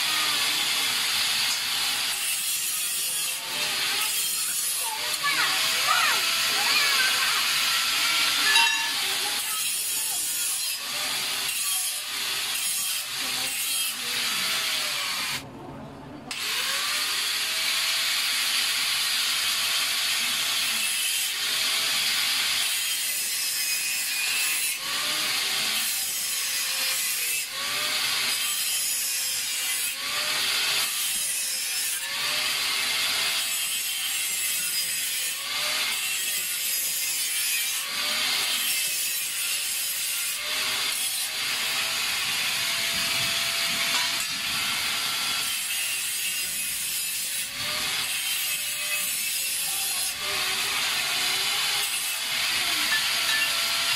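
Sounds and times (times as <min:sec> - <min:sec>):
saw rasping through wood: 0:00.0 - 0:15.4, 0:16.3 - 0:53.9.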